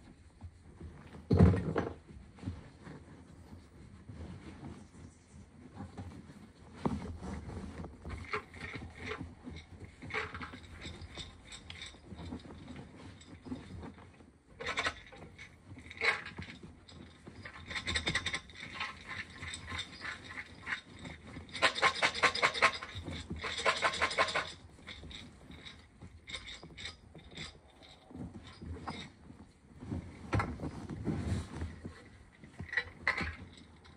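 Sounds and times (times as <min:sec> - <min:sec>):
jar handling knocks and rustles: 0:00.4 - 0:33.9
popcorn rattling in glass jar: 0:14.6 - 0:28.8.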